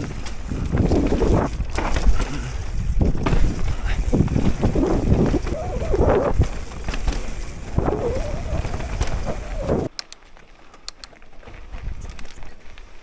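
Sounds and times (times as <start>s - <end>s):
wind buffeting microphone: 0.0s - 9.9s
bike trail rumble: 0.0s - 13.0s.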